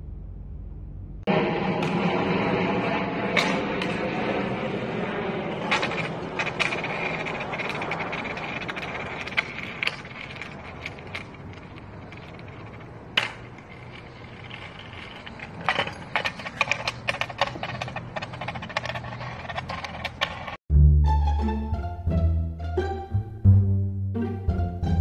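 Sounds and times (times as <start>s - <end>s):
skateboard wheels rolling on concrete: 1.3s - 20.6s
skateboard clicks and rattles: 3.4s - 20.6s.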